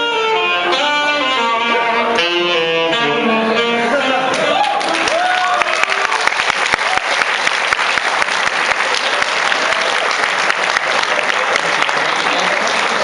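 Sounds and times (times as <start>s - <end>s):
audience applauding: 4.3s - 13.0s.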